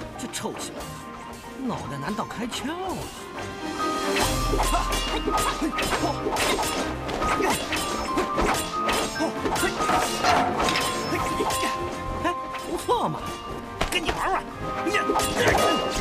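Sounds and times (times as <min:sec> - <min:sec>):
background music: 0:00.0 - 0:16.0
swords clashing: 0:04.2 - 0:14.3, 0:14.9 - 0:16.0.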